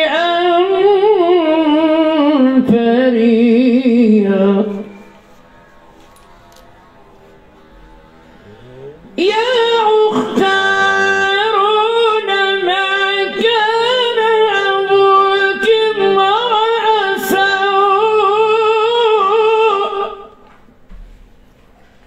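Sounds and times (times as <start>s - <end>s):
man chanting melodically: 6.8s - 14.7s.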